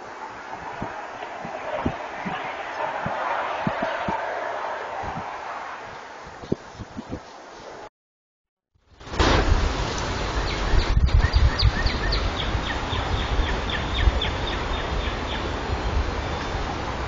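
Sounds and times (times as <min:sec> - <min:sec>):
wind buffeting microphone: 0:00.0 - 0:07.5, 0:09.2 - 0:17.0
songbird singing: 0:10.2 - 0:16.8.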